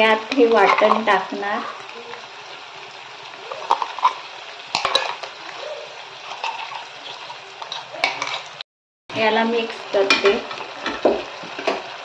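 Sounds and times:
food sizzling in a pan: 0.0s - 12.0s
spoon knocking metal pan: 0.2s - 1.2s, 3.6s - 5.4s, 10.0s - 11.8s.

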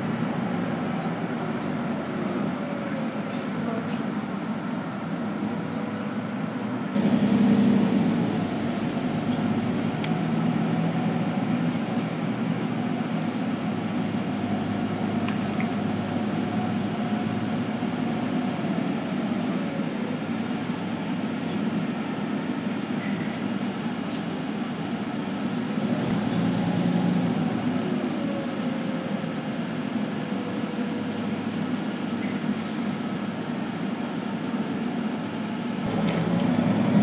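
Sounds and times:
bus engine hum: 0.0s - 37.0s
road rumble: 0.0s - 37.0s.

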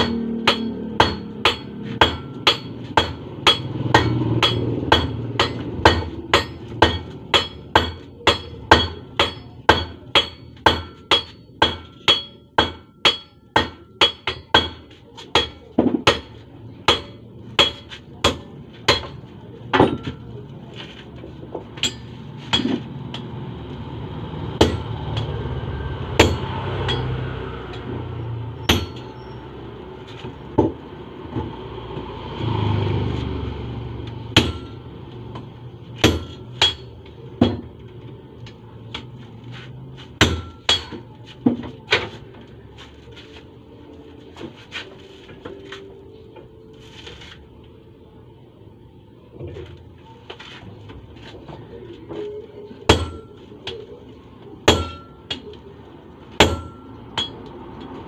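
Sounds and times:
hammer striking iron on anvil: 0.0s - 20.2s, 21.8s - 23.4s, 24.5s - 25.4s, 26.1s - 28.0s, 28.6s - 29.3s, 34.3s - 37.8s, 40.2s - 41.2s, 52.9s - 53.8s, 54.6s - 55.6s, 56.4s - 57.9s.

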